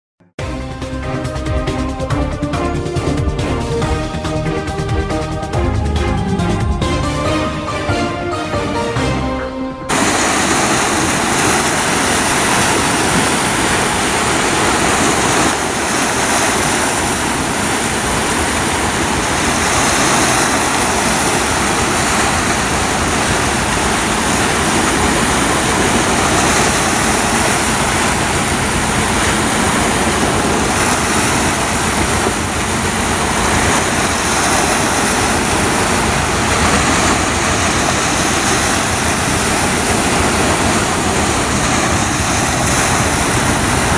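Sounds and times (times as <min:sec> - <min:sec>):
waves washing onto beach: 0:09.9 - 0:43.9.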